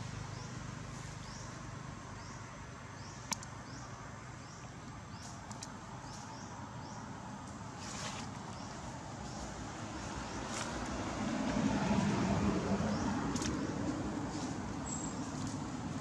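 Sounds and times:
sharp click: 3.3 - 3.5.

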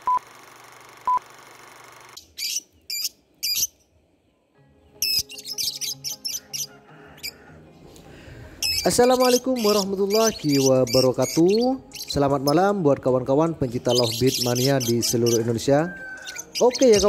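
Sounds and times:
lovebird chirping shrilly: 2.2 - 3.8, 5.0 - 7.4, 8.6 - 12.6, 13.8 - 17.0.

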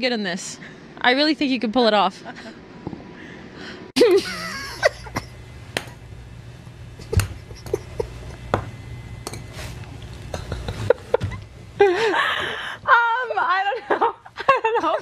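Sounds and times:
low steady hum: 0.0 - 15.0
people laughing: 4.0 - 5.4, 7.0 - 8.5, 10.3 - 15.0.

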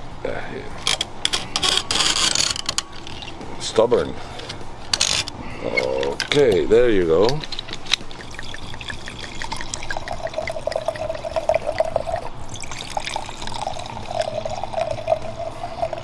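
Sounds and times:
wine gurgling into glass: 8.1 - 16.0.

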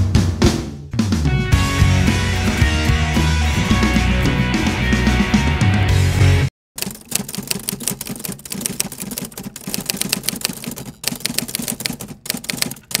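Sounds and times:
music: 0.0 - 6.5
typewriter key clicks: 6.8 - 13.0.

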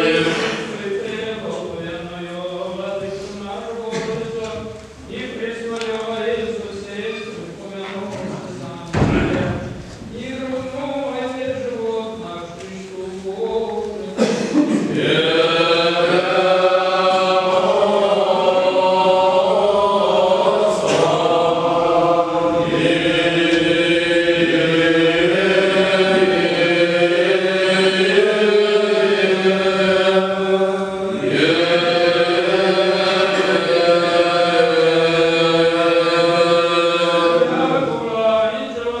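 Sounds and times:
men chanting in long notes: 0.0 - 5.7, 14.9 - 39.0.

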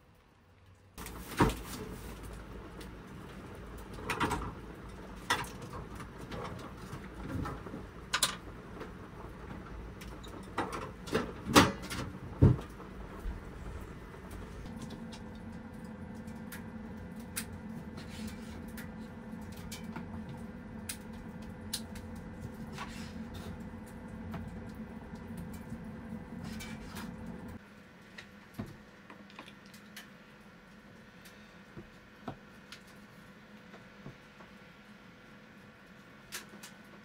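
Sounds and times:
steady low hum: 1.0 - 36.4.

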